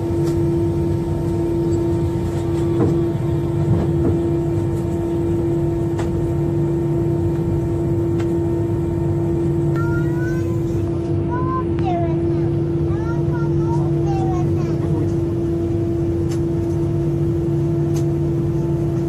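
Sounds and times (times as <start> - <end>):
jet engine hum in cabin: 0.0 - 19.0.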